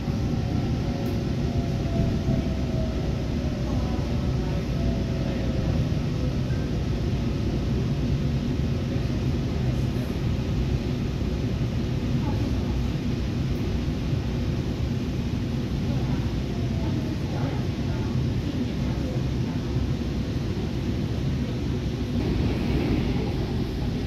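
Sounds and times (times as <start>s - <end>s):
faint train whine: 0.0s - 24.0s
train low rumble: 0.0s - 24.0s.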